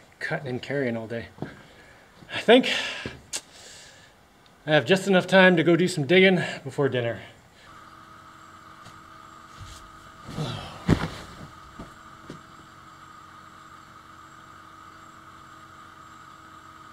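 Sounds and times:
background hum with faint tone: 0:00.0 - 0:16.9
bedding rustling: 0:09.5 - 0:12.0.

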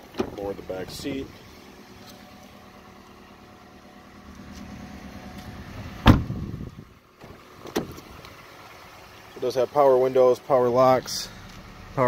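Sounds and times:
car engine idling: 0:00.0 - 0:12.0
car door shutting: 0:04.4 - 0:08.2.

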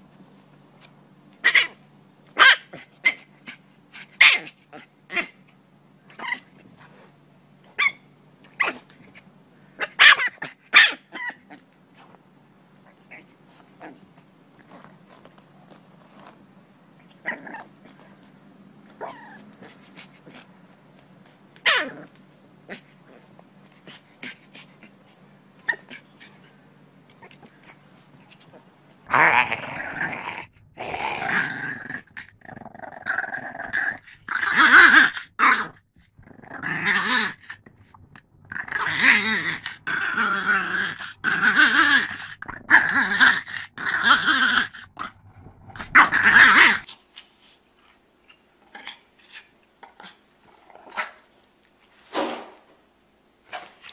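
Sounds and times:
faint rustles and clicks: 0:00.0 - 0:01.5, 0:11.6 - 0:29.1, 0:46.8 - 0:53.9
dog growling: 0:12.8 - 0:16.4, 0:17.0 - 0:25.0, 0:25.6 - 0:46.9, 0:48.6 - 0:51.3.

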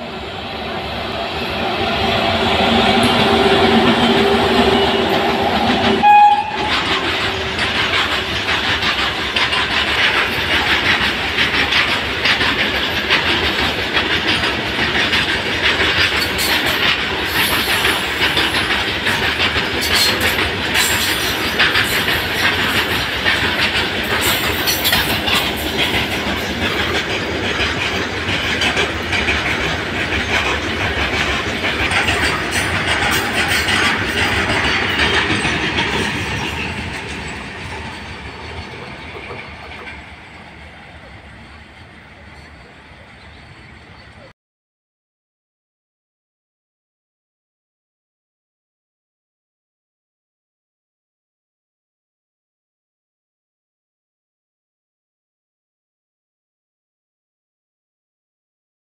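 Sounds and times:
wheels clattering over rail joints: 0:03.0 - 0:40.7.

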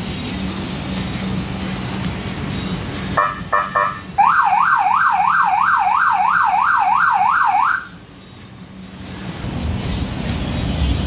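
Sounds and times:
electronic police siren yelp: 0:03.2 - 0:08.0.

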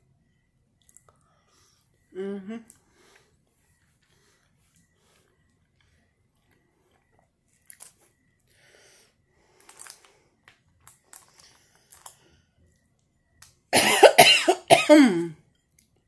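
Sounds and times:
mouth clicks while eating: 0:00.8 - 0:01.2
person coughing: 0:13.8 - 0:15.4.

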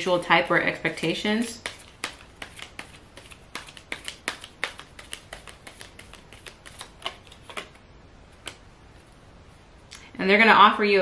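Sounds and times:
cards being shuffled: 0:00.8 - 0:07.8, 0:08.4 - 0:08.7.

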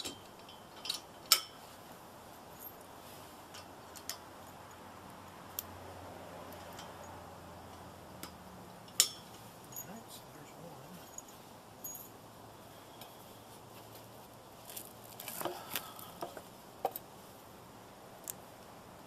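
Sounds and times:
metal hitch parts clicking: 0:00.0 - 0:01.6, 0:02.6 - 0:04.8, 0:06.5 - 0:10.1.

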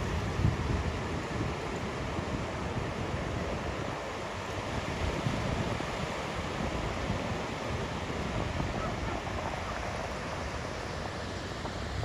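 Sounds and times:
small ocean waves breaking: 0:00.0 - 0:12.0
wind buffeting microphone: 0:00.0 - 0:12.0.

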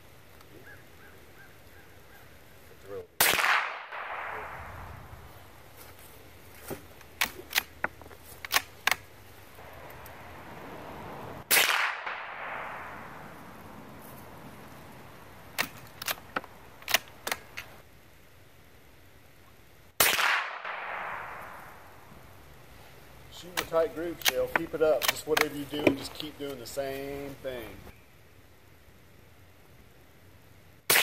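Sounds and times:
rifle shot: 0:03.2 - 0:05.2, 0:11.5 - 0:13.2, 0:20.0 - 0:21.8
rifle bolt metallic clicks: 0:07.2 - 0:09.1, 0:15.6 - 0:17.7, 0:23.5 - 0:26.0.

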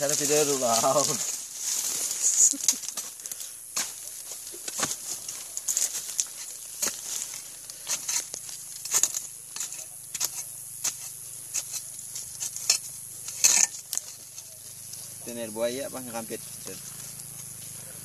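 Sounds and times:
steady high hiss: 0:00.0 - 0:18.0
chisel crackling scrapes: 0:04.6 - 0:15.1.

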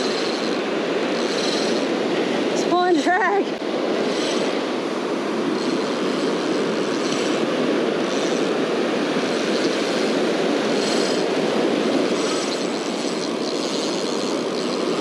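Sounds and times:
fishing reel drag buzzing: 0:00.0 - 0:03.1, 0:03.8 - 0:15.0
ocean surf: 0:00.0 - 0:15.0
wind on microphone: 0:00.0 - 0:15.0.

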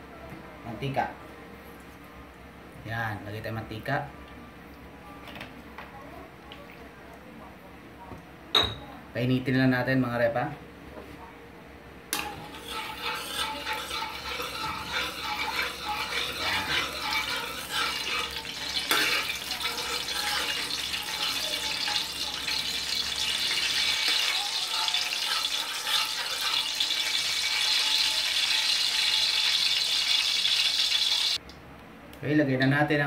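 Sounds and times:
metal spoon scraping a pan: 0:12.1 - 0:31.4
oil crackling and sizzling in a wok: 0:12.2 - 0:31.4.

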